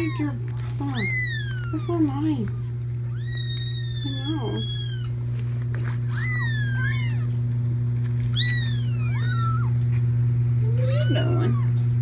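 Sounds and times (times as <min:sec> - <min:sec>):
kittens meowing: 0:00.0 - 0:05.2, 0:06.0 - 0:07.4, 0:08.2 - 0:09.8, 0:10.6 - 0:11.8.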